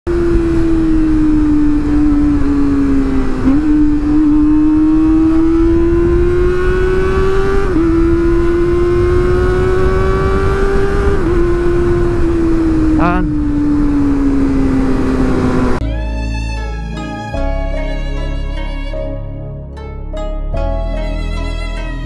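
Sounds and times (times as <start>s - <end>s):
motorcycle engine at high revs: 0.1s - 15.8s
wind rumble on microphone: 0.1s - 15.8s.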